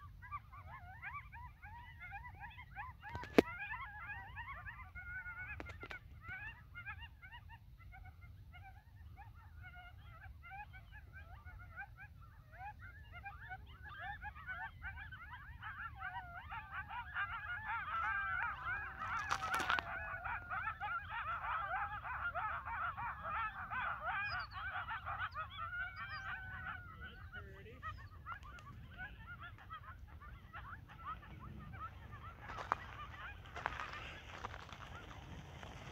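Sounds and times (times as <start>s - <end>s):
coyotes howling and yipping: 0.0s - 35.9s.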